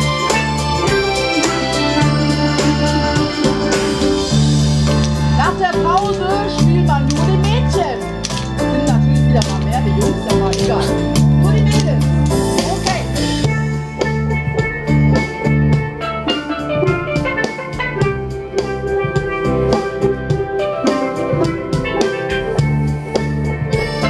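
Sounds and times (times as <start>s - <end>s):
steel pan band playing: 0.0s - 24.0s.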